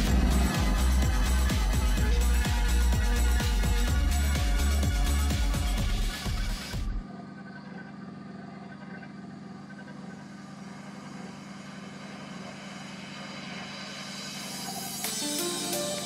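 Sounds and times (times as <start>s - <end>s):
background music: 0.0s - 7.0s, 14.8s - 16.0s.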